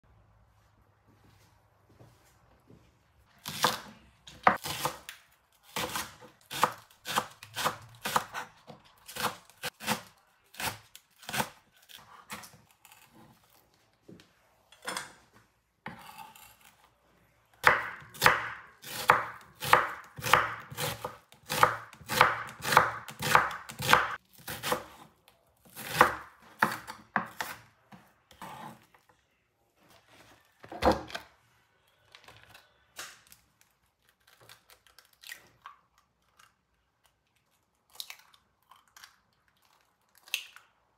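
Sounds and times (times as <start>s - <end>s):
knife chopping on wooden board: 17.6s - 25.1s, 25.8s - 27.6s.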